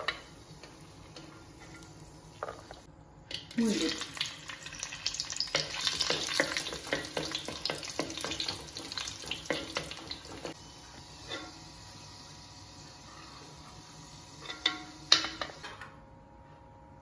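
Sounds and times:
raisins sizzling in oil: 0.0 - 15.7
spatula scraping and clicking on pan: 5.5 - 10.6.

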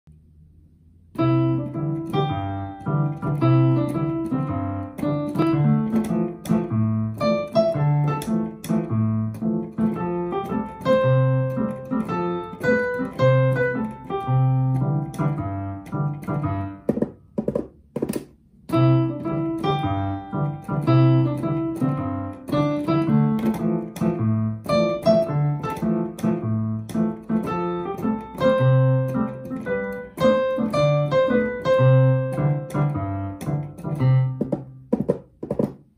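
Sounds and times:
reggae-style piano piece: 1.1 - 35.9.

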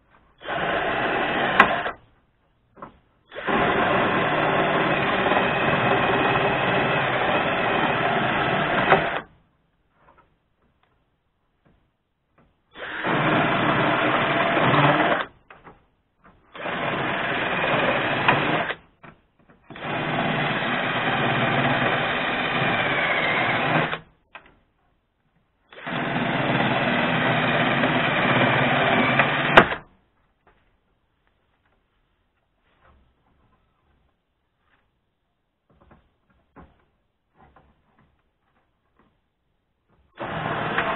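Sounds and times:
cordless drill boring into sheet steel: 3.3 - 9.3, 12.7 - 15.3, 16.5 - 18.8, 19.7 - 24.1, 25.7 - 29.8, 40.2 - 40.9.

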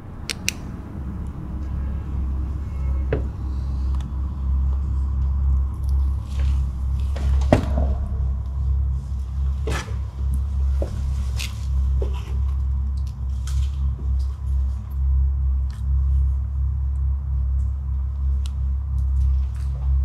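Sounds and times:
low rumble on microphone: 0.0 - 20.0
footsteps on littered tile floor: 3.0 - 15.2.

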